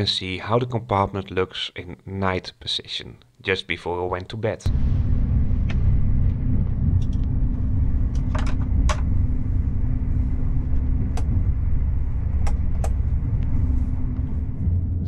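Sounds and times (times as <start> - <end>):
train carriage rumble: 4.7 - 15.0.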